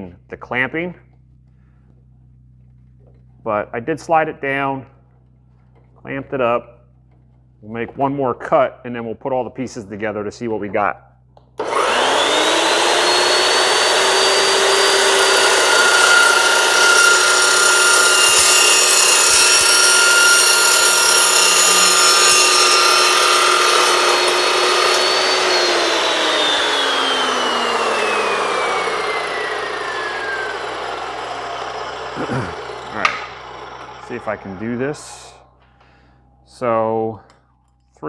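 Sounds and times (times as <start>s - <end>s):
saw blade grinding metal pipe: 11.6s - 35.4s
chop saw motor whine: 11.6s - 36.1s.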